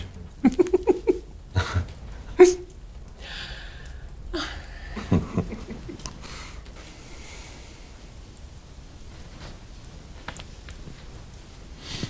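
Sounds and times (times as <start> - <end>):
soft breathy laughter: 0.0 - 2.6, 4.4 - 6.6
exhaled breath: 3.2 - 5.0.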